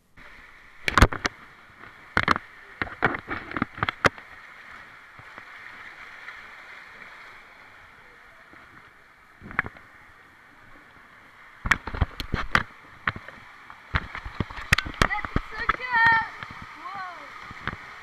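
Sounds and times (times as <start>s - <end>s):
water rushing through slide: 13.9s - 18.0s.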